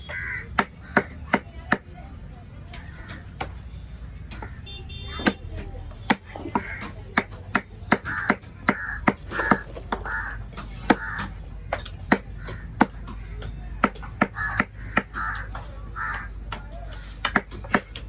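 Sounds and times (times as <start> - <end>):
knife chopping fish on wood: 5.2 - 18.0.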